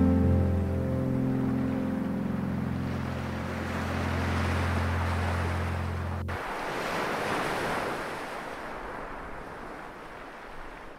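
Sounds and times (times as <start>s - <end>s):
low music chord: 0.0s - 6.5s
sea waves breaking on rocks: 2.8s - 10.9s.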